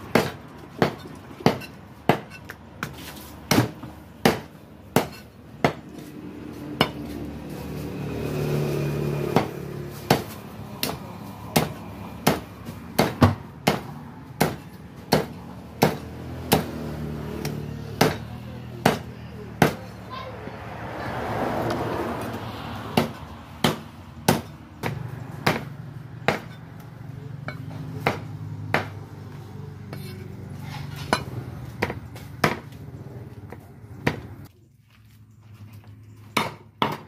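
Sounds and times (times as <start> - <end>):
cleaver chopping meat on wood: 0.0 - 6.0, 9.0 - 19.9, 22.9 - 30.1, 31.8 - 32.8, 36.3 - 37.0.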